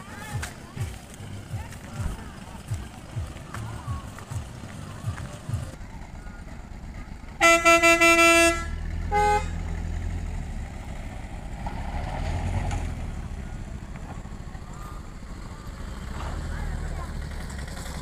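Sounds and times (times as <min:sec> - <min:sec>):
vehicle engines rumbling: 0:00.0 - 0:18.0
short horn beep: 0:07.4 - 0:09.6
vehicle horn blast: 0:07.4 - 0:09.7.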